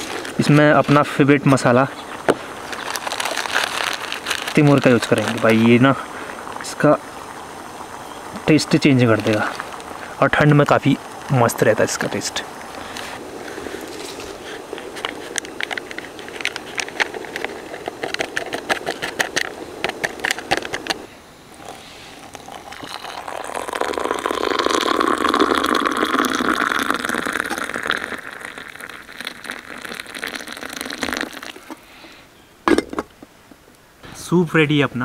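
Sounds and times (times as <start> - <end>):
foil sachet crinkling: 2.2 - 5.8, 12.9 - 21.0
hot water pouring into a mug: 2.6 - 11.8, 21.5 - 31.8.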